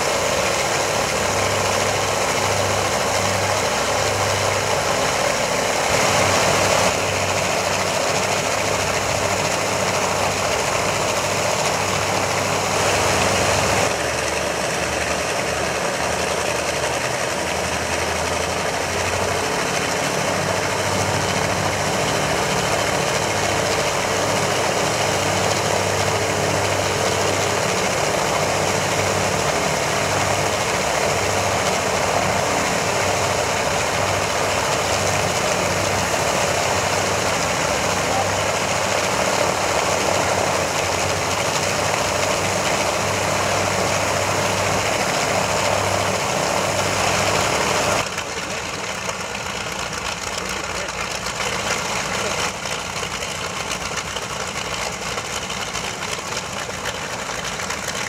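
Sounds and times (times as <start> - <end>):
propeller aircraft engines droning: 0.0 - 58.0.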